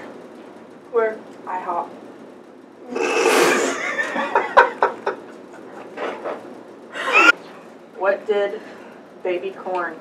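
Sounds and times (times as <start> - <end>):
young women laughing: 3.6 - 5.8, 7.0 - 7.4.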